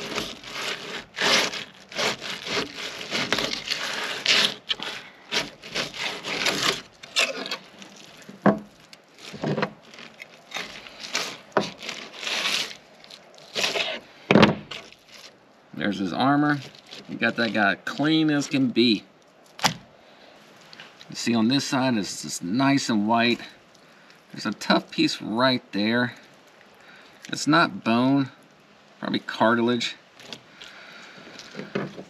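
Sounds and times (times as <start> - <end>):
knife rasping through fish skin: 0.0 - 8.3, 9.2 - 14.0.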